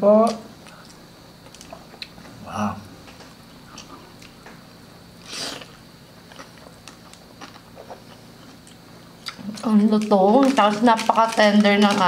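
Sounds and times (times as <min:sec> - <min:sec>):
chewing crispy food: 0:00.2 - 0:02.4, 0:05.3 - 0:12.0
crunchy bite: 0:05.2 - 0:11.9.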